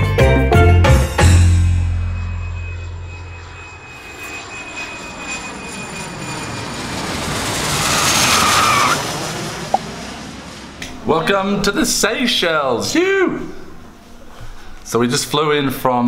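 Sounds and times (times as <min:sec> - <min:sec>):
jet airliner passing: 0:01.5 - 0:14.0.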